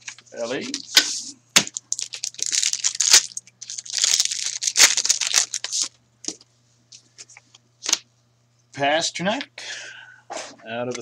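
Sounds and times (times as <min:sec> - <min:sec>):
cards and plastic sleeves rustling: 0:00.0 - 0:06.0.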